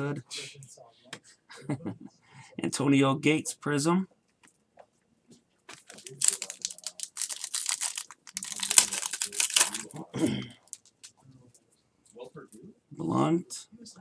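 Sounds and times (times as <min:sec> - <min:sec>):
foil wrapper tearing and crinkling: 0:05.7 - 0:10.0.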